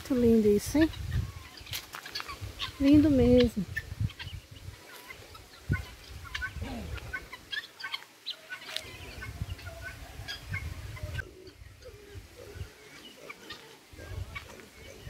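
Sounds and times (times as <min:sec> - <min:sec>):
guineafowl calling: 0:00.2 - 0:15.0.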